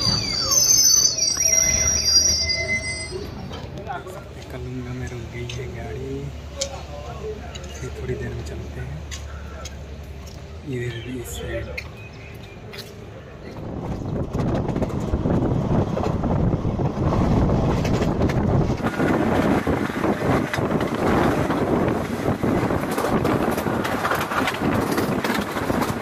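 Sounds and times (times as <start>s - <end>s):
train rumbling and rattling: 0.0s - 26.0s
wind buffeting microphone: 13.4s - 26.0s.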